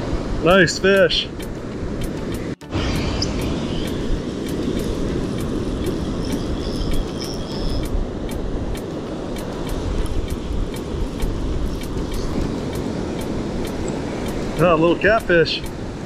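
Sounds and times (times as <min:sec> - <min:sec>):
wind rumbling on microphone: 0:00.0 - 0:16.0
surf breaking on beach: 0:08.4 - 0:16.0.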